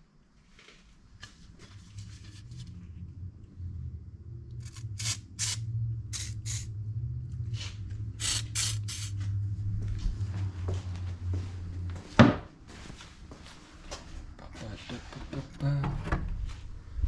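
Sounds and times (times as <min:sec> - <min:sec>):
steady low hum: 0:00.0 - 0:17.0
aerosol can spraying: 0:04.6 - 0:06.7, 0:08.2 - 0:09.2.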